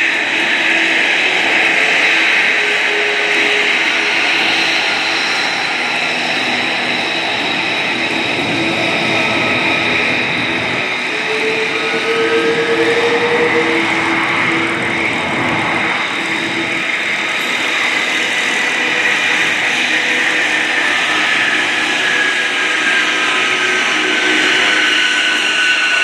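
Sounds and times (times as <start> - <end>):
aircraft radial engines droning: 0.0 - 26.0
engine whine falling in pitch: 7.8 - 17.0.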